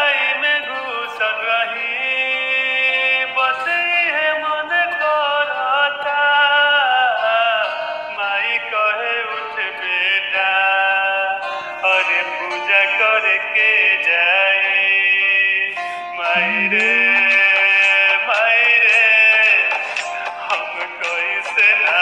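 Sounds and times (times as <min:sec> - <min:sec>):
instrumental backing: 0:00.0 - 0:22.0
person singing: 0:07.0 - 0:22.0.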